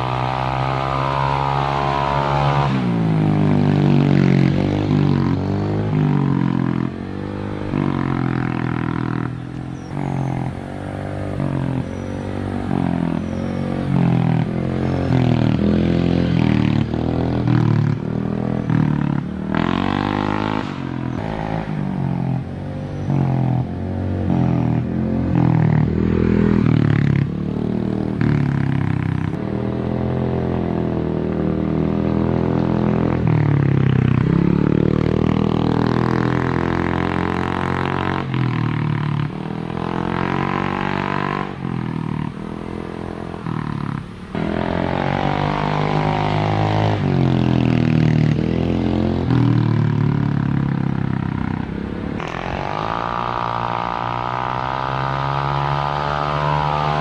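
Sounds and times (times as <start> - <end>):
scooter engine revving: 48.4 - 57.0.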